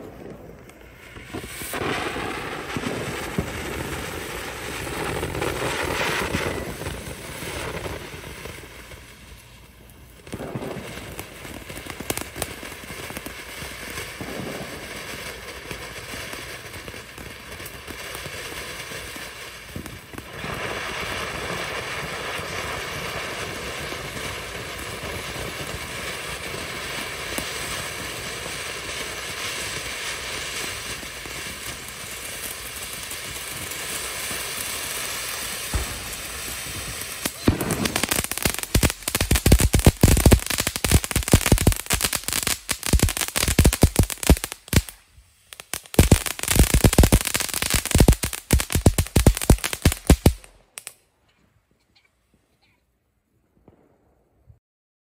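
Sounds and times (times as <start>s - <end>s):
firework pops: 0.0s - 3.7s, 10.2s - 12.4s, 14.2s - 14.8s, 35.7s - 45.0s, 45.9s - 51.0s
firework fountain hissing: 0.0s - 50.9s.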